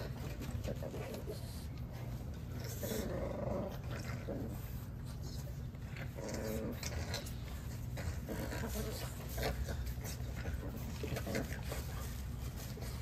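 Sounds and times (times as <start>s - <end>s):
dogs growling and grunting: 0.0s - 13.0s.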